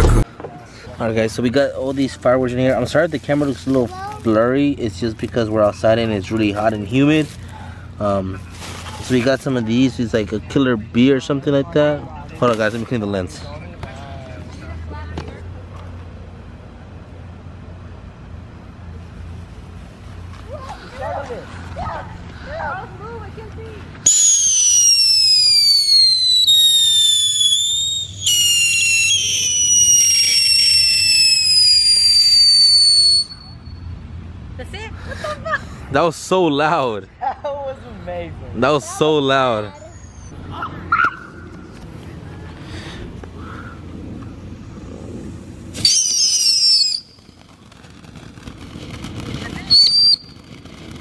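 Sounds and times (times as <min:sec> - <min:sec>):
firework spraying sparks: 0:00.0 - 0:00.2, 0:24.0 - 0:33.4, 0:45.0 - 0:51.0
shrill falling whistle: 0:24.1 - 0:33.8, 0:45.8 - 0:47.3, 0:49.7 - 0:50.4.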